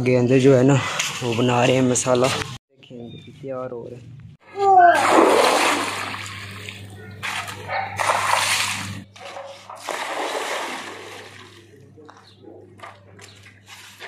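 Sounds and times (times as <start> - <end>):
water splashing on concrete: 4.9 - 11.8.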